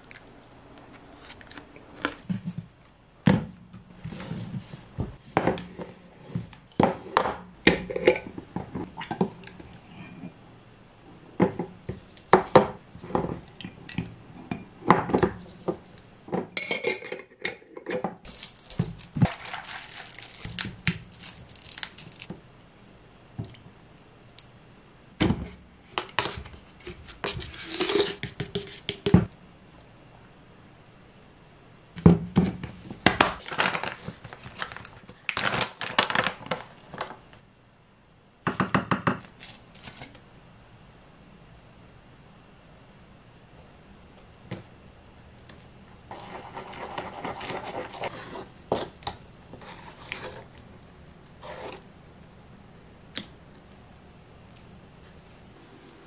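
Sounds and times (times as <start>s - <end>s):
plastic bag rustling: 18.3s - 22.3s, 33.3s - 37.2s.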